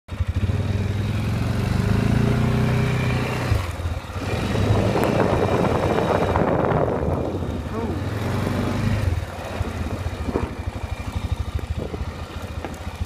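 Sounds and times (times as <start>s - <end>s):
engine running: 0.1s - 13.0s
rough rushing noise: 3.4s - 13.0s.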